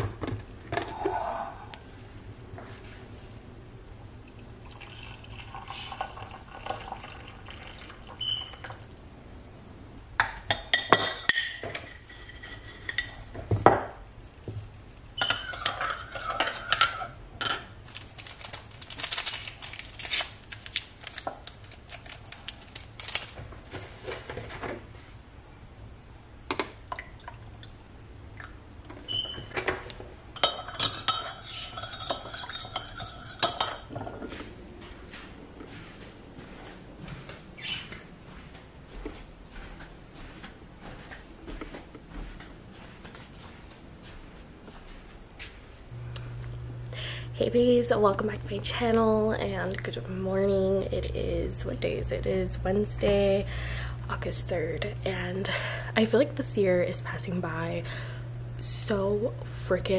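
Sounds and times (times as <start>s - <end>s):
spoon clinking in mug: 30.4s - 33.9s.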